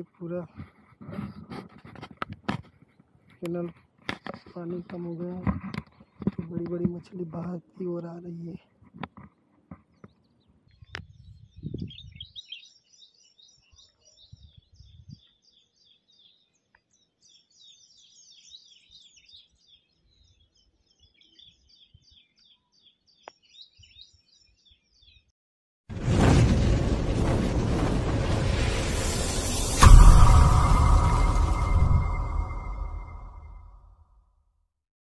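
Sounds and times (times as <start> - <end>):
small birds chirping: 9.4 - 25.3
logo sound effect with music: 29.0 - 33.8.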